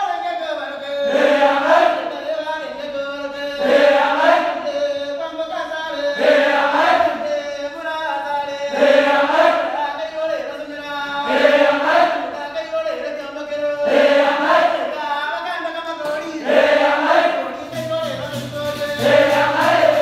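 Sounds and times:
boys' choir chanting in unison: 1.0 - 2.3, 3.6 - 4.8, 6.2 - 7.4, 8.7 - 10.0, 11.2 - 12.4, 13.8 - 15.1, 16.4 - 17.6, 19.0 - 20.0.

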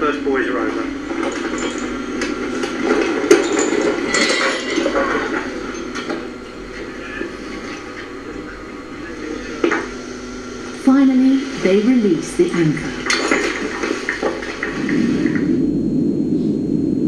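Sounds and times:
rushing background noise: 0.2 - 17.0
metallic clinks and knocks: 1.1 - 5.0.

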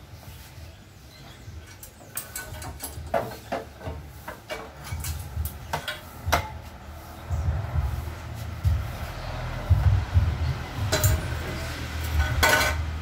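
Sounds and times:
metal tools clinking and knocking: 1.6 - 6.1, 10.9 - 12.9.

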